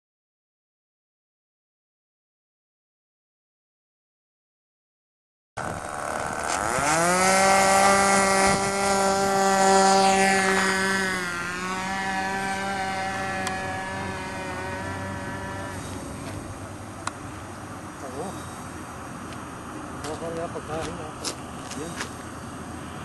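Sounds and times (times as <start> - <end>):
model airplane engine revving: 5.6 - 16.6.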